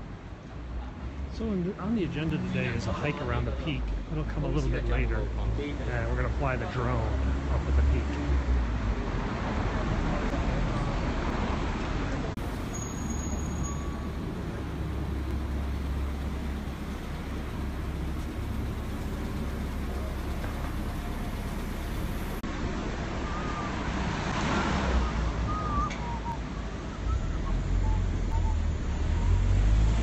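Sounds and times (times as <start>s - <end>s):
low rumble of traffic: 0.0s - 30.0s
car passing close: 11.2s - 22.4s.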